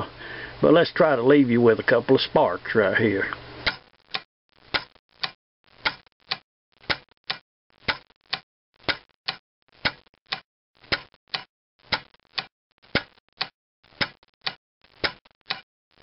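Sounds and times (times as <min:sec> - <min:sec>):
magneto snapping and clicking: 0:03.6 - 0:15.6.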